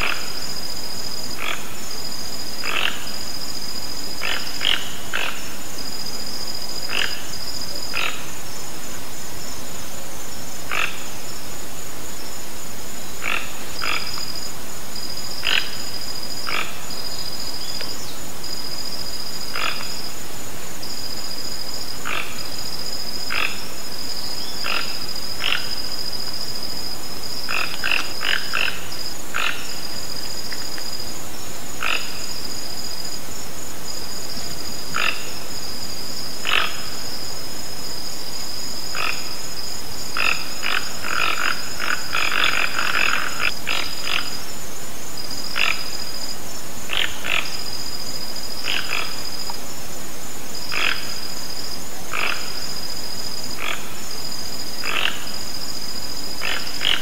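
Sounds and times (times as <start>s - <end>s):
toucan croaking calls: 0.0s - 0.6s, 1.3s - 1.8s, 2.6s - 3.4s, 4.1s - 5.6s, 6.8s - 8.4s, 10.7s - 11.2s, 13.2s - 14.3s, 15.4s - 17.9s, 19.4s - 20.0s, 22.0s - 22.6s, 23.2s - 23.8s, 24.4s - 26.0s, 27.5s - 29.9s, 31.8s - 32.3s, 34.9s - 35.4s, 36.4s - 37.0s, 38.9s - 39.4s, 40.1s - 44.4s, 45.5s - 46.0s, 46.9s - 47.7s, 48.6s - 49.6s, 50.7s - 51.2s, 52.1s - 52.8s, 53.6s - 54.0s, 54.8s - 55.4s, 56.4s - 57.0s.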